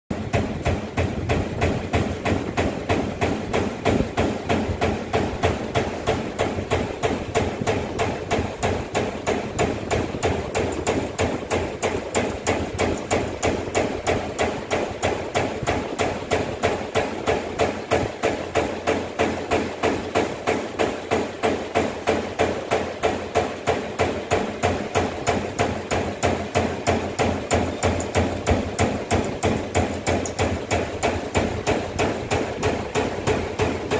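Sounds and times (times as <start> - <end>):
punch press punching sheet metal: 0.1 - 33.9.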